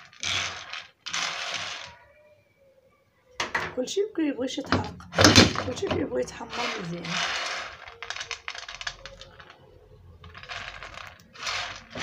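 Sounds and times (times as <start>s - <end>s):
roasted beans rattling and clicking: 0.0s - 2.0s, 5.1s - 12.0s.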